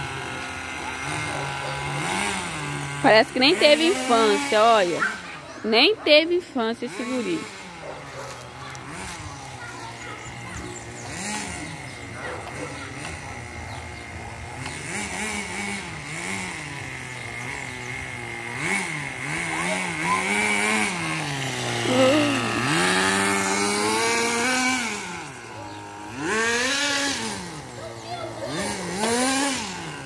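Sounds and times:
model car motor revving: 0.0s - 30.0s.

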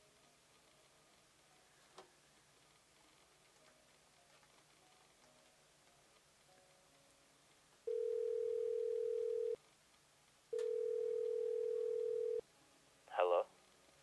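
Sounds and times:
telephone ringback tone: 7.9s - 9.6s, 10.5s - 12.4s.

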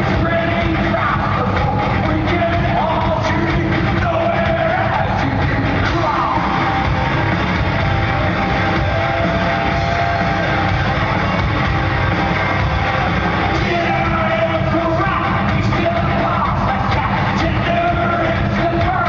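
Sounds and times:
sung and shouted vocals: 0.0s - 7.2s, 13.0s - 19.0s
live metal band playing: 0.0s - 19.0s.

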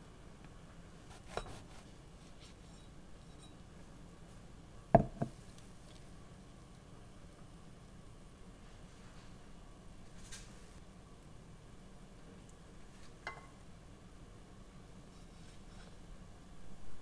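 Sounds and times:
bread knife rasping through roll: 1.1s - 2.0s
sharp knocks on cutting board: 5.0s - 5.3s.

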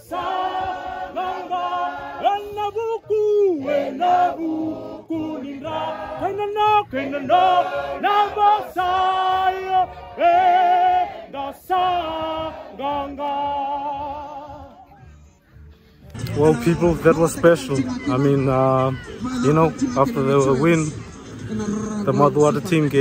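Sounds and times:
group singing a hymn: 0.0s - 2.6s, 3.4s - 14.8s.

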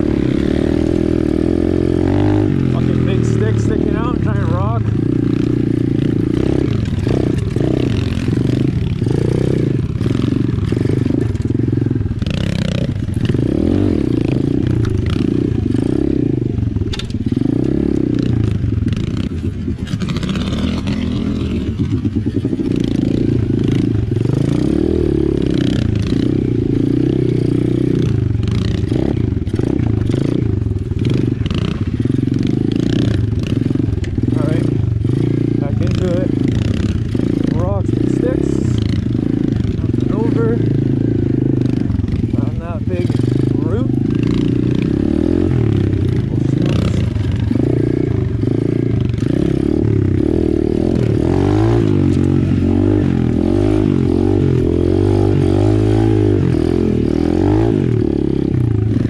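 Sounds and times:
pit bike engine revving: 0.0s - 59.0s
bike rattling over rough ground: 0.1s - 54.8s.

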